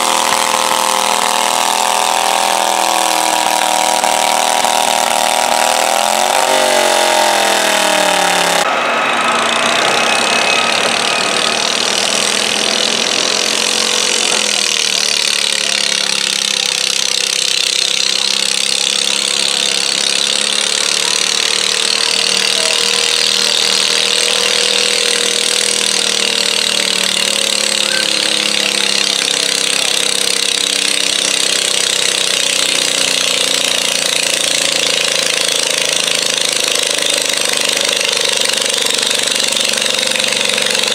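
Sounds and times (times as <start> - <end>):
garden tractor engines running hard: 0.0 - 40.9.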